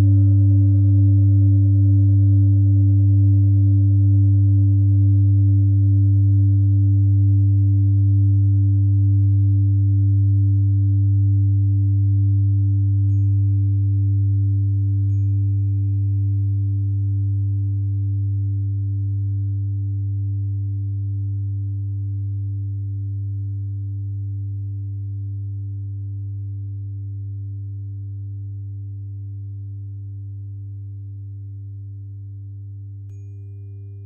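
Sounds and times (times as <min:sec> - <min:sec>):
tuning fork ringing: 0:00.0 - 0:34.0.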